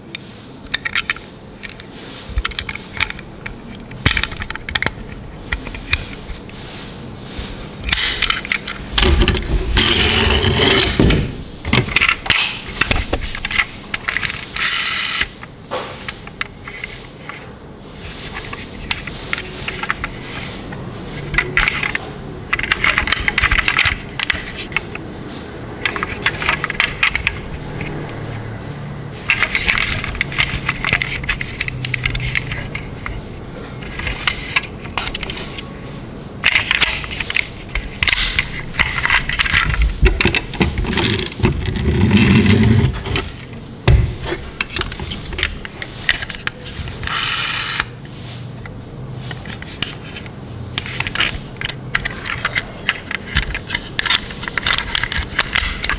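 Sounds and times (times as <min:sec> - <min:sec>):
toy car clicks and rattles: 0:11.8 - 0:15.3, 0:21.4 - 0:24.9, 0:25.8 - 0:27.9, 0:29.3 - 0:32.9, 0:36.4 - 0:43.2, 0:44.6 - 0:48.0, 0:49.4 - 0:55.9.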